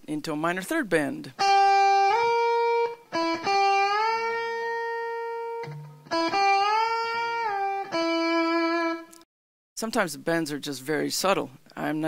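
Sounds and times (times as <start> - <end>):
electric guitar string bends: 1.4 - 9.2.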